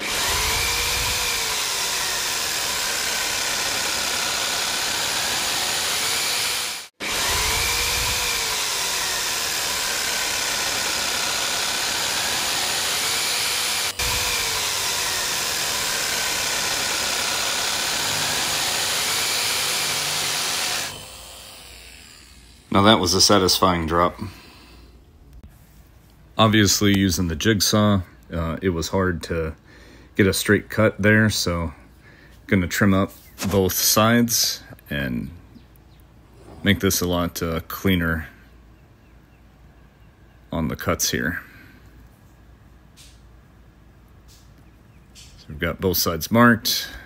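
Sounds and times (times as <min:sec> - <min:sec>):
jigsaw cutting board: 0:00.0 - 0:23.4.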